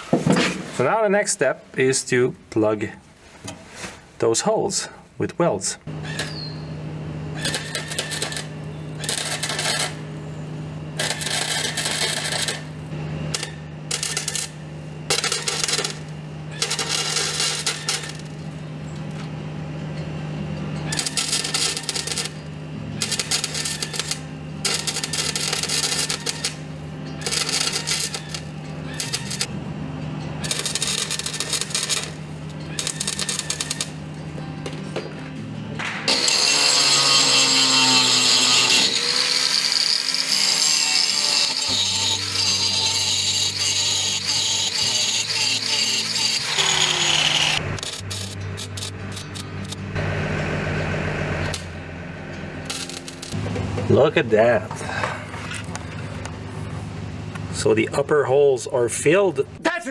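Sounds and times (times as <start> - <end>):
steady low hum: 4.8 - 36.3, 41.6 - 59.6
welding arc crackling: 6.1 - 6.5, 7.4 - 10.2, 10.9 - 18.6, 20.9 - 29.5, 30.4 - 34.0, 36.1 - 50.0, 51.4 - 51.8, 52.6 - 53.4.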